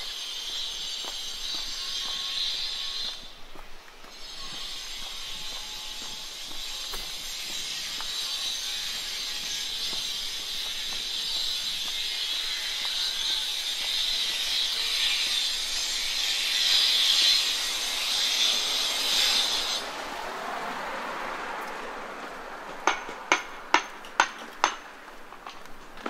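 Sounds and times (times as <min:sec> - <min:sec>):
steady high hiss: 0:00.0 - 0:20.3
ringing hammer strikes: 0:22.8 - 0:24.8.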